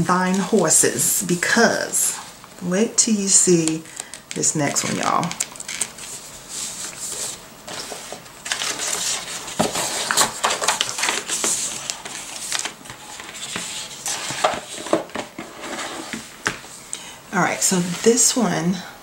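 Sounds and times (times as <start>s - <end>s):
cardboard boxes scraping and rustling: 6.0s - 16.3s.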